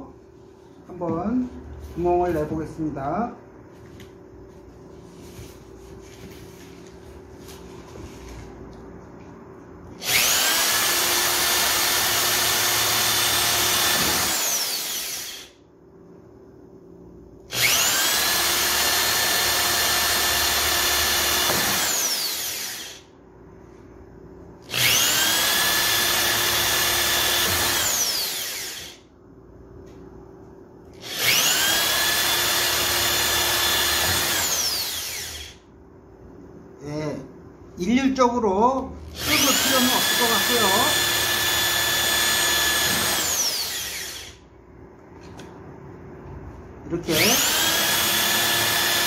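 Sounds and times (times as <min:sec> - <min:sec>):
electric drill whining: 0:10.0 - 0:15.6, 0:17.5 - 0:23.1, 0:24.7 - 0:29.0, 0:31.0 - 0:35.7, 0:39.1 - 0:44.4, 0:47.1 - 0:49.0.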